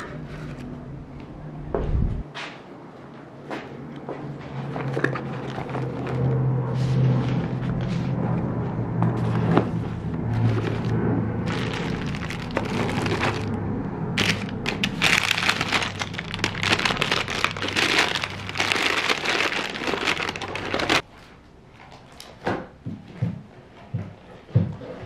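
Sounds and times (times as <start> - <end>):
paper packaging crinkling: 4.8 - 8.0, 9.2 - 13.6, 14.2 - 21.1.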